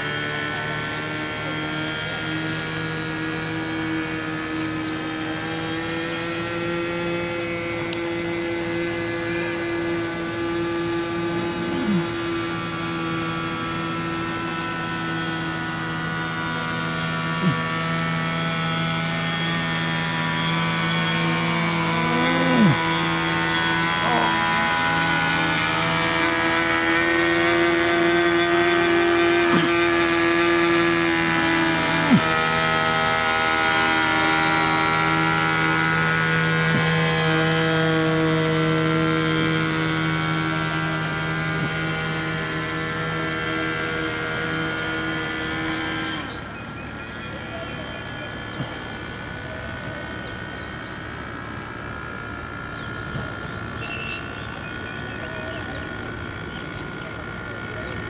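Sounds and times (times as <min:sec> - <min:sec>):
small propeller engine droning: 0:00.0 - 0:58.0
falling-pitch sounds: 0:11.0 - 0:12.6, 0:18.8 - 0:26.2.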